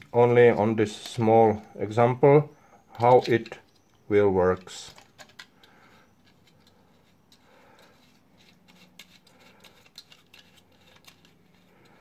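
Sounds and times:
plastic parts clicking and scraping: 2.9 - 12.0.

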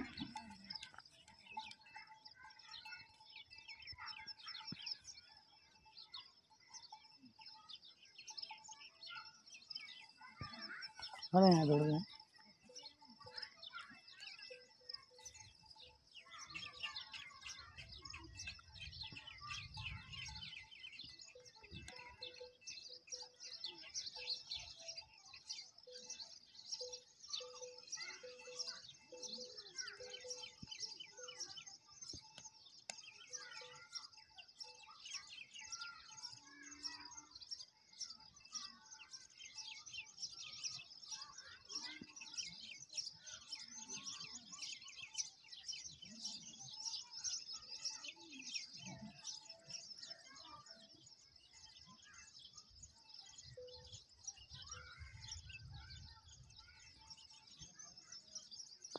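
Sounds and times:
goat bells jingling: 0.0 - 9.4.

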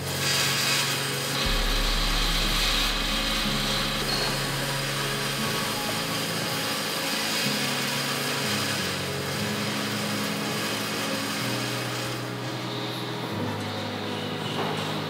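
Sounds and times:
power tool grinding: 0.0 - 13.0
low hum shifting pitch: 1.4 - 7.6.

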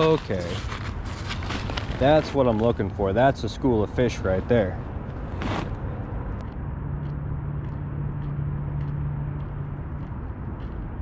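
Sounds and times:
steady low hum: 2.5 - 11.0.

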